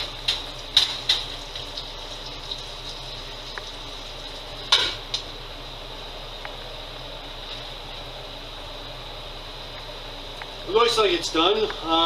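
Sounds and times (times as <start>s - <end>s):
meat sizzling in a pan: 0.0s - 5.2s.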